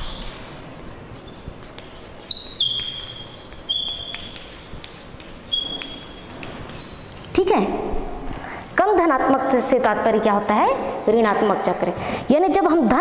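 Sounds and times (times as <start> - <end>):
writing tip squeaking: 0.8 - 7.4
writing tip tapping on board: 2.7 - 6.8.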